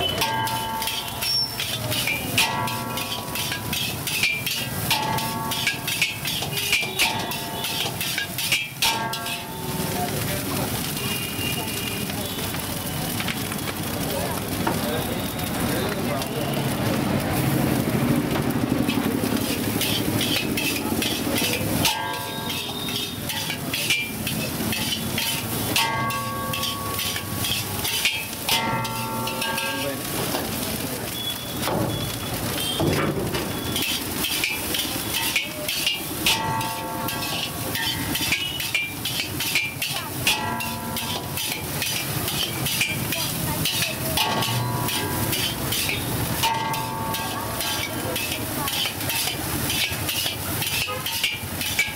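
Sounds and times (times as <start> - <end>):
metal ladle scraping wok: 0.0 - 11.5, 17.7 - 51.9
food sizzling: 0.0 - 51.9.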